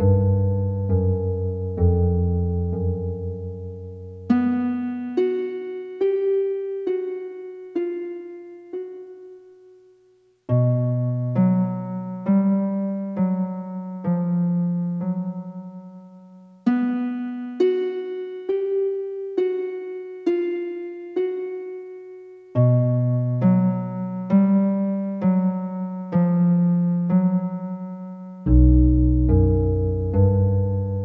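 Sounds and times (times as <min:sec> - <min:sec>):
slow piano melody: 0:00.0 - 0:31.0
low bass note: 0:28.5 - 0:31.0.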